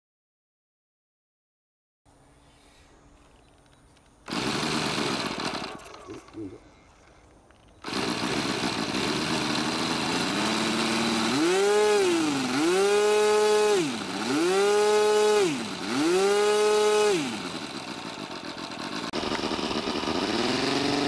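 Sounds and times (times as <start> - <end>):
electric starter cranking: 4.2 - 6.6, 7.6 - 21.0
engine revving whine: 7.8 - 21.0.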